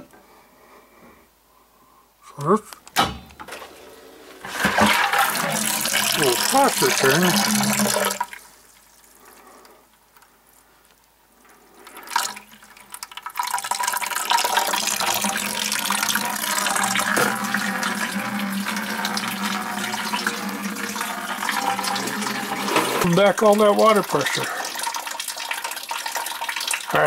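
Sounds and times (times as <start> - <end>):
water rushing from pipe: 4.4 - 8.6, 11.8 - 27.0.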